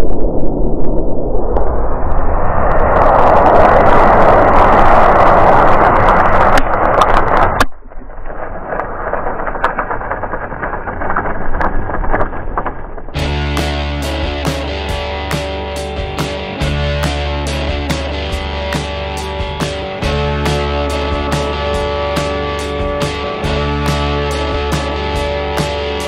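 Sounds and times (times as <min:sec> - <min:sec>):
fire crackling and popping: 0:00.0 - 0:14.7
rush of flame: 0:00.0 - 0:16.4.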